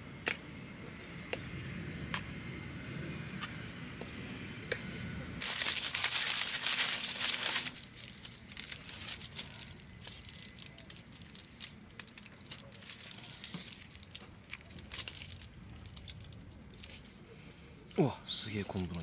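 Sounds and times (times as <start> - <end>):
food wrapper crinkling: 5.4 - 17.1.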